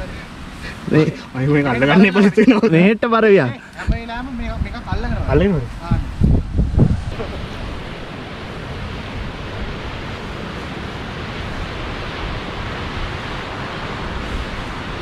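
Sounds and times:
rushing water: 0.0s - 15.0s.

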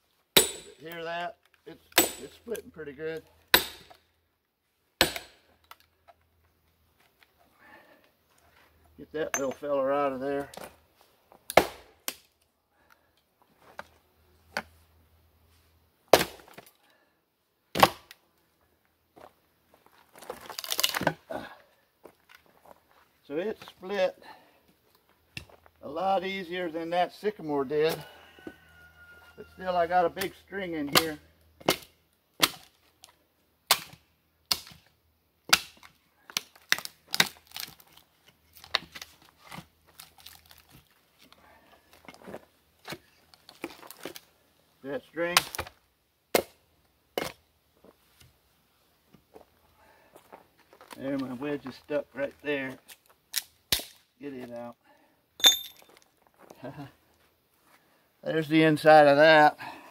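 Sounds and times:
hammer striking steel wedge: 0.4s - 0.8s, 2.0s - 2.4s, 3.5s - 4.0s, 5.0s - 5.4s
hatchet chopping wood: 0.4s - 0.9s, 1.9s - 2.4s, 3.5s - 4.0s, 5.0s - 5.4s, 11.5s - 12.2s, 16.1s - 16.7s, 17.7s - 18.2s, 30.9s - 32.7s, 33.7s - 34.8s, 35.5s - 37.4s, 45.3s - 45.7s, 46.3s - 46.6s, 47.2s - 47.4s, 53.4s - 54.0s.

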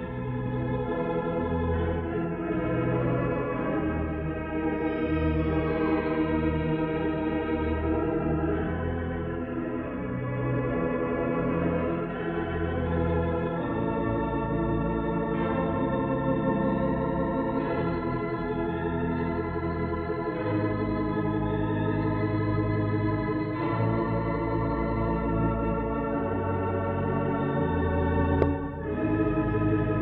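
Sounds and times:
pipe organ sustained chords: 0.0s - 30.0s.

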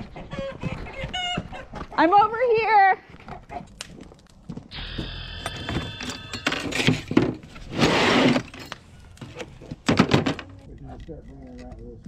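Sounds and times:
metal tools clinking: 5.4s - 7.6s, 8.2s - 11.8s
loud rustling scrape: 6.6s - 9.4s.

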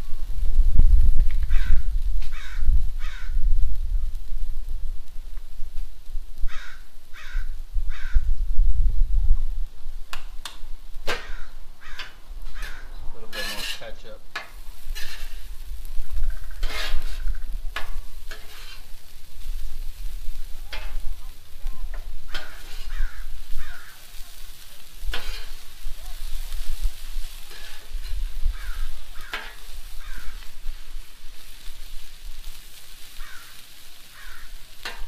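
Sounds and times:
food sizzling: 0.0s - 35.0s
metal spatula scraping griddle: 11.0s - 35.0s.

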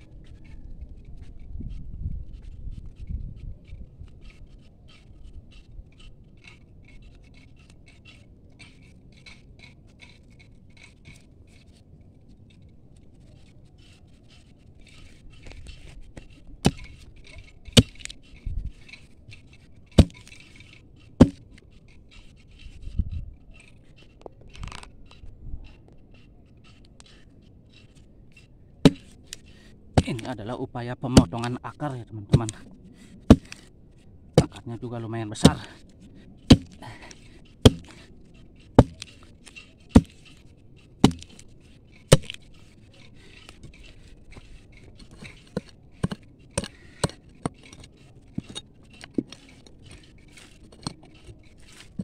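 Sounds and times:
faint scratching: 0.0s - 52.0s
digging bar hitting soil: 15.0s - 21.7s, 27.8s - 33.7s, 34.3s - 52.0s.

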